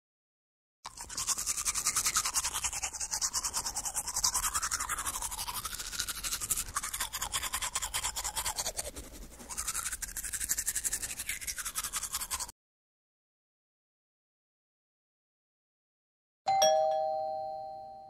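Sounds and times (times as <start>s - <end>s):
toothbrush scrubbing teeth: 0.8s - 12.5s.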